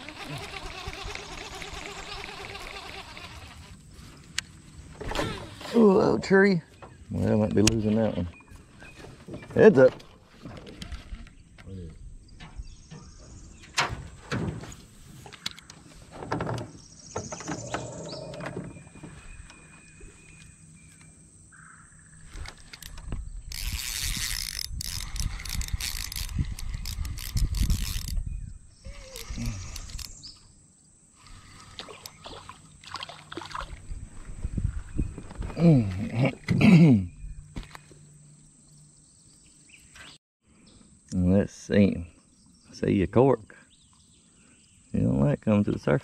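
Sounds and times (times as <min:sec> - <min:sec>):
clicks and knocks of fishing gear: 0:22.3 - 0:28.2
fish splashing at water surface: 0:31.3 - 0:33.8.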